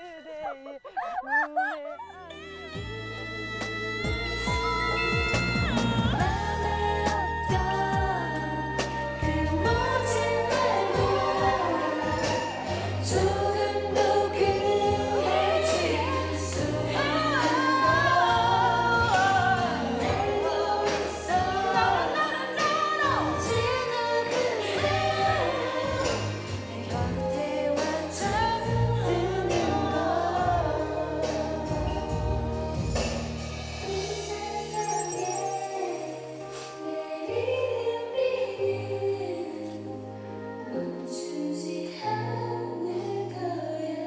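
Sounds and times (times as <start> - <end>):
women singing pop song: 0.0 - 44.0
backing track with steady beat: 2.4 - 36.7.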